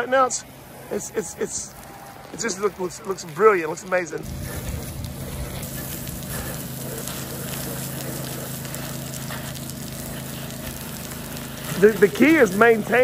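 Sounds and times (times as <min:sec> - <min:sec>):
pressure washer water jet spattering: 0:00.9 - 0:13.0
low machine hum: 0:04.2 - 0:13.0.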